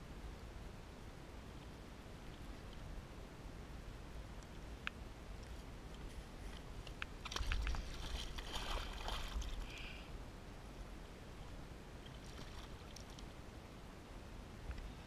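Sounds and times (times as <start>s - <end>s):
faint steady water noise: 0.0s - 15.0s.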